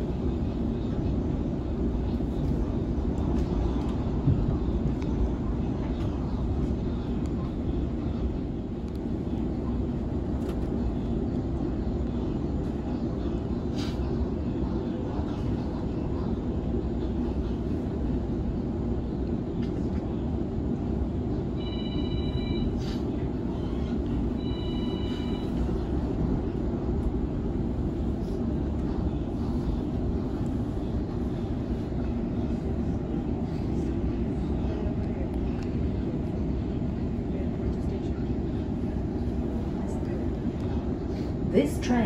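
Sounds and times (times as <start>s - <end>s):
electric train rumbling: 0.0s - 42.0s.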